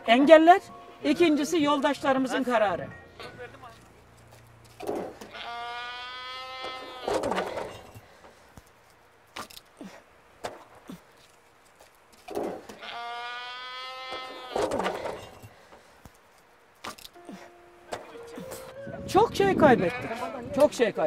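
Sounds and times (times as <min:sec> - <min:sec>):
goat bleating: 0:05.2 - 0:07.9, 0:12.7 - 0:15.3, 0:19.6 - 0:20.5.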